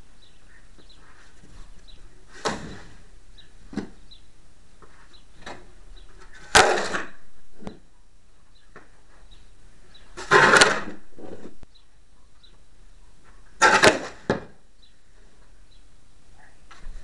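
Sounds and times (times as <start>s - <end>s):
snow shovel scraping ground: 10.2s - 11.5s.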